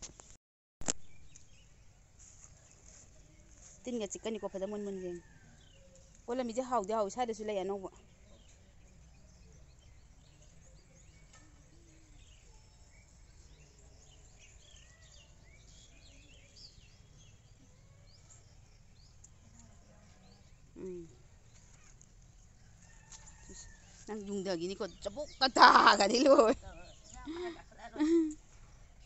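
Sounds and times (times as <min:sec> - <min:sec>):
outdoor background noise: 0:00.0 - 0:29.0
faint bird chirps: 0:07.9 - 0:29.0.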